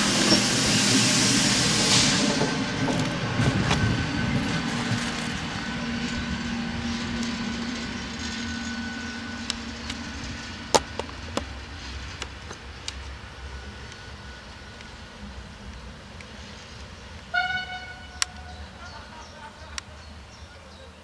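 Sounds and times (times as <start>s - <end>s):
electric locomotive hum: 0.0s - 21.0s
wheels clicking on track: 2.8s - 17.3s.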